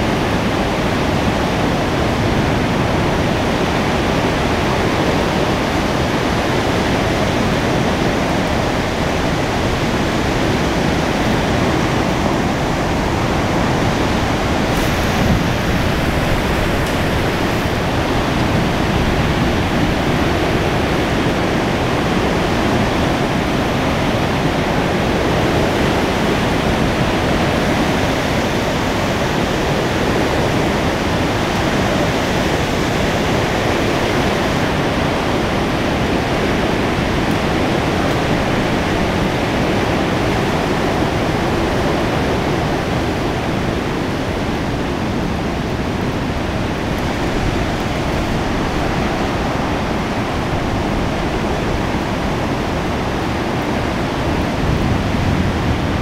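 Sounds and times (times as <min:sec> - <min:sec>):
heavy thunderstorm rain: 0:00.0 - 0:56.0.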